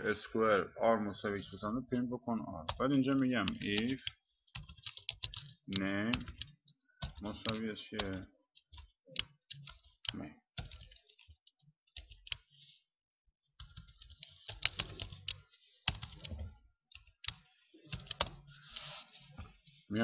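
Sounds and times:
keyboard typing clicks: 2.7 - 12.5, 13.6 - 18.4.

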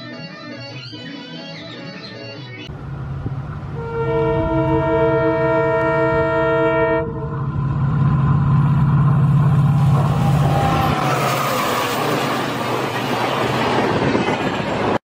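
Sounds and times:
locomotive engine drone: 2.6 - 15.0
train wheels clattering on rails: 8.6 - 15.0.

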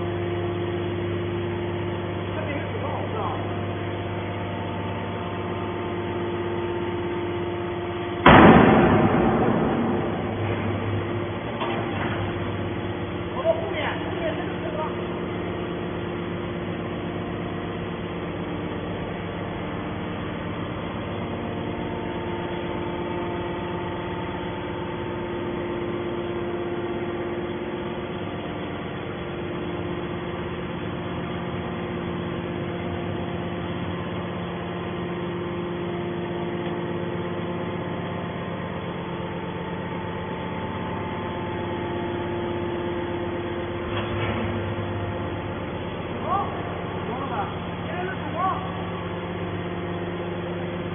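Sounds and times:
hydraulic power unit humming: 0.0 - 50.9.

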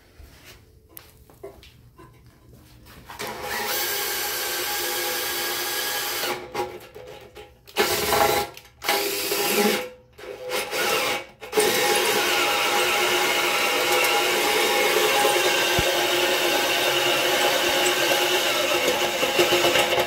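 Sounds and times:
electric drill boring metal: 3.2 - 6.5, 7.8 - 20.0.

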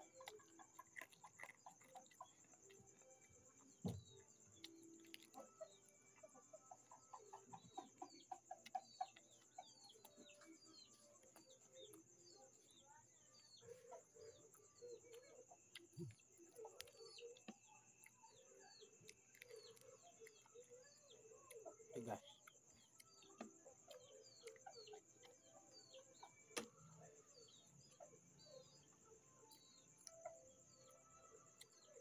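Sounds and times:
chickens clucking: 4.6 - 12.1.

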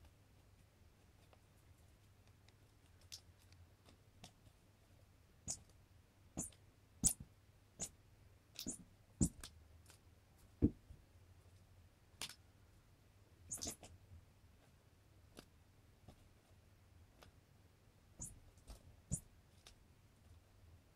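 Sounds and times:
dull thumps on carpet: 10.6 - 10.8
squeaky toy squeaks: 13.5 - 13.9.

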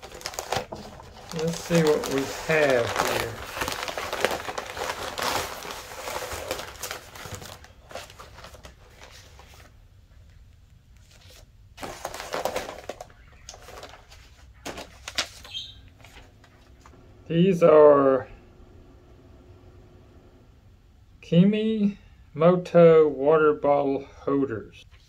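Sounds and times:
paper and plastic packaging rustling: 0.0 - 10.4, 11.0 - 16.9.

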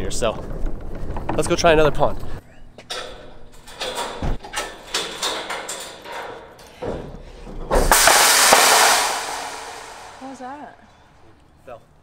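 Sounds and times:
steel ramp gate clanking: 2.8 - 10.6
metal gate crashing onto ground: 2.9 - 7.1, 7.7 - 10.6.

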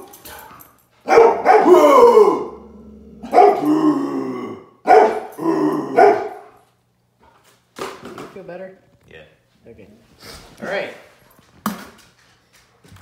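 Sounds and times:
dog barking and growling: 0.0 - 6.6.

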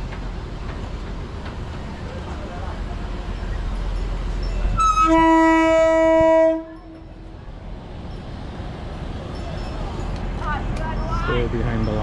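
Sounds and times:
train rumbling: 0.0 - 12.0
train horn blast: 4.8 - 7.2.

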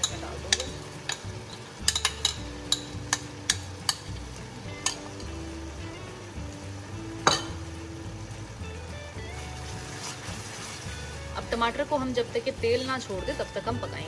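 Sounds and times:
metal spoon knocking on pan: 0.0 - 4.1, 7.2 - 7.6
masala sizzling in a pan: 0.0 - 14.0.

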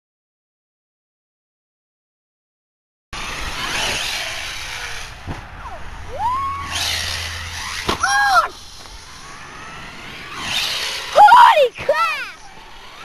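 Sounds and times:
low motor hum: 3.2 - 13.0
motor whine: 3.2 - 13.0
wheel and gravel noise: 3.2 - 13.0.

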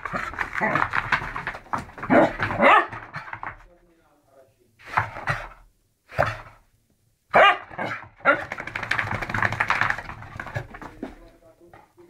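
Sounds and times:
dog barking: 2.1 - 3.0, 7.3 - 8.4.

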